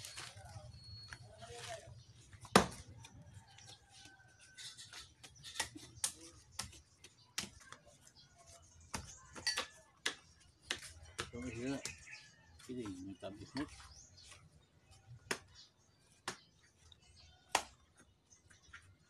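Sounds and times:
knife chopping fruit: 0:08.9 - 0:12.0.

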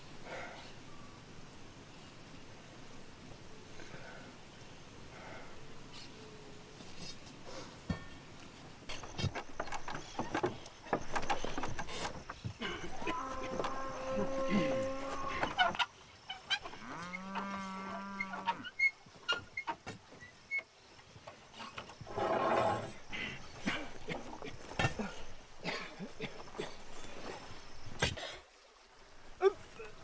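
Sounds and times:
cattle lowing: 0:08.9 - 0:19.4, 0:22.0 - 0:28.2.

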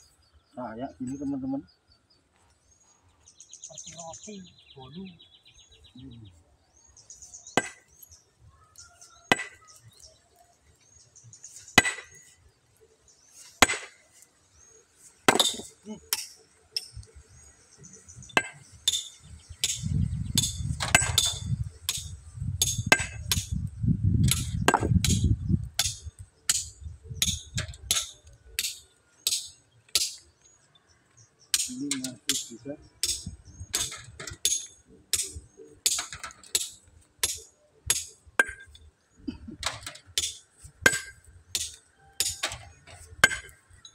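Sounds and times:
sledgehammer striking stone: 0:07.6 - 0:07.9, 0:09.3 - 0:09.6, 0:11.8 - 0:12.2, 0:13.6 - 0:14.0, 0:15.2 - 0:16.4, 0:18.4 - 0:19.8, 0:20.4 - 0:23.5, 0:24.3 - 0:25.2, 0:35.8 - 0:38.7, 0:39.8 - 0:43.6.

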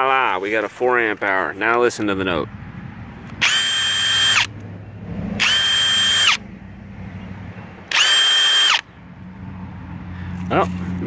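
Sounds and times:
impact wrench whine: 0:03.4 - 0:04.5, 0:05.4 - 0:06.4, 0:07.9 - 0:08.9.

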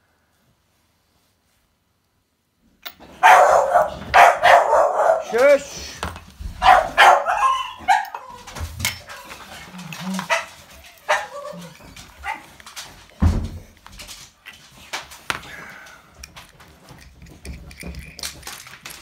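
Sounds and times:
dog barking: 0:03.2 - 0:05.6, 0:06.6 - 0:08.3, 0:10.2 - 0:12.5.

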